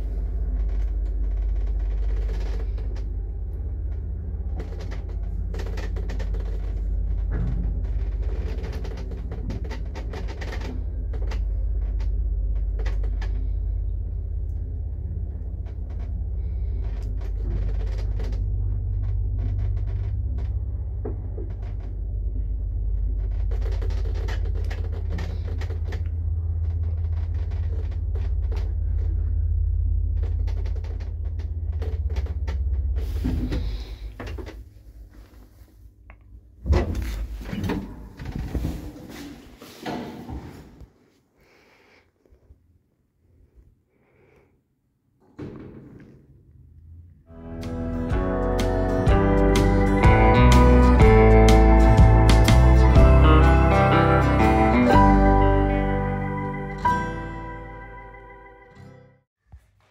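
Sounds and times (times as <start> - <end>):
lift motor hum and rumble: 0.0 - 41.2, 45.2 - 58.9
clicks and rattles: 0.1 - 13.9, 15.3 - 29.4, 30.1 - 34.6.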